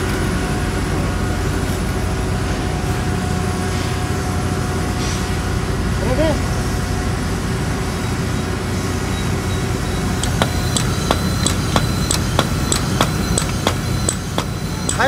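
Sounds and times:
hydraulic pump rumble: 0:09.8 - 0:15.0
pump stroking clicks: 0:10.2 - 0:15.0.

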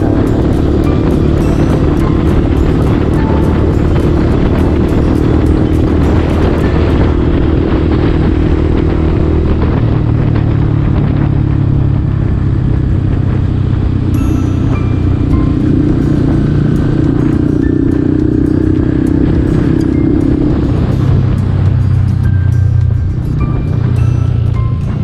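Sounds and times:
background music with a beat: 0:00.0 - 0:07.1, 0:14.2 - 0:25.0
motorcycle engine running: 0:00.0 - 0:25.0
wind and road noise: 0:00.0 - 0:25.0.

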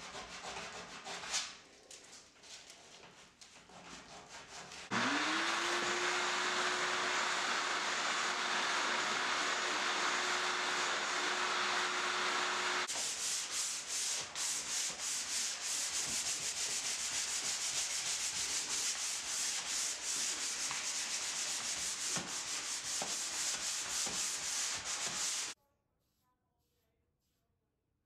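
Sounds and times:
hand sanding on wood: 0:00.0 - 0:01.5, 0:03.1 - 0:26.2
power sander humming: 0:04.9 - 0:12.9.

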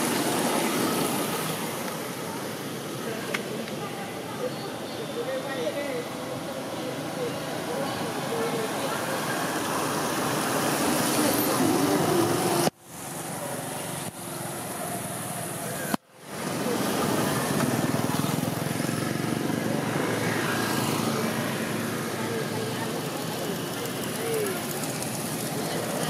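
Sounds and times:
distant traffic: 0:00.0 - 0:26.0
faint far-off voices: 0:14.7 - 0:26.0.

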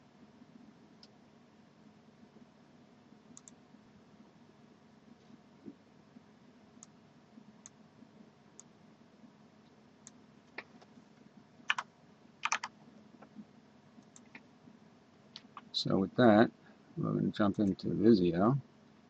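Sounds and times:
computer mouse clicks: 0:03.3 - 0:03.6, 0:11.7 - 0:13.4, 0:14.0 - 0:14.5
keyboard keystrokes: 0:11.7 - 0:12.7.

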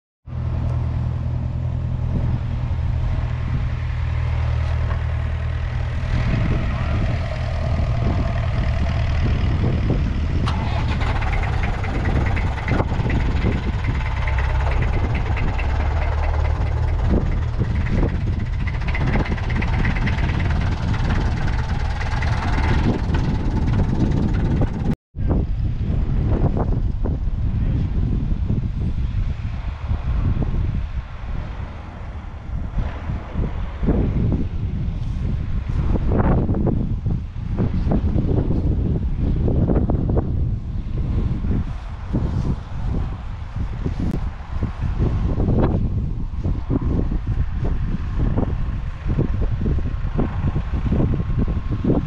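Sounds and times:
tractor diesel engine idling: 0:01.8 - 0:25.0.

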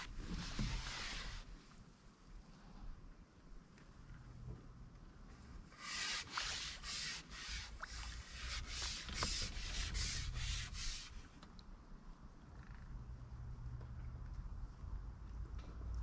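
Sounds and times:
fishing pole rubbing: 0:05.7 - 0:11.2.

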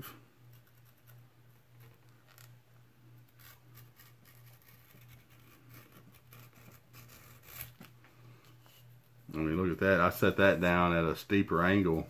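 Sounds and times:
low steady hum: 0:00.0 - 0:12.0
knife scraping leather: 0:03.3 - 0:07.8.

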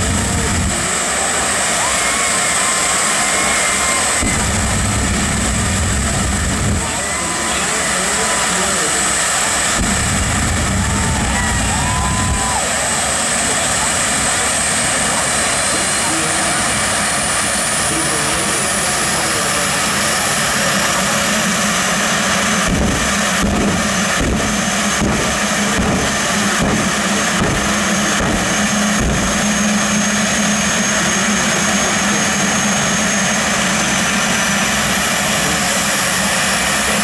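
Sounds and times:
jet turbine idling whine: 0:00.0 - 0:37.0.

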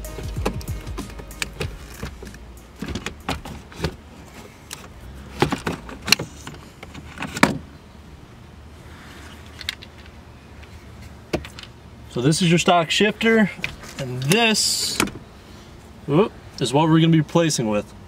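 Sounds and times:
shifter assembly clicking and knocking: 0:00.2 - 0:04.0.

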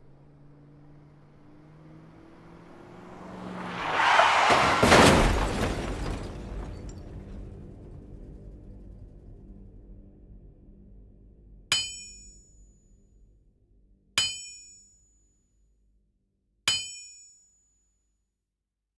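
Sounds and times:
low music drone: 0:06.4 - 0:14.1
sharp metallic strikes: 0:11.7 - 0:12.8, 0:14.2 - 0:15.0.

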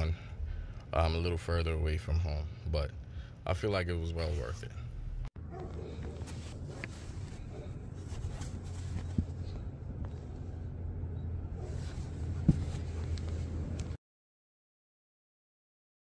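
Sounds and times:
steady low hum: 0:00.0 - 0:14.0
carpet handling: 0:05.5 - 0:14.0
soft thumps: 0:12.3 - 0:13.0.

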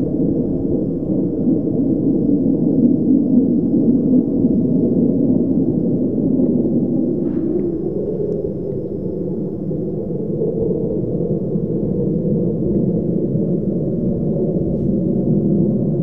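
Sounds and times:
jet flying overhead: 0:00.0 - 0:16.0.

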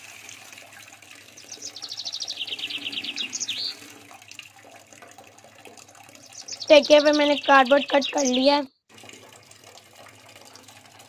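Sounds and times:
bird trilling chirps: 0:01.4 - 0:03.9, 0:06.2 - 0:08.7.

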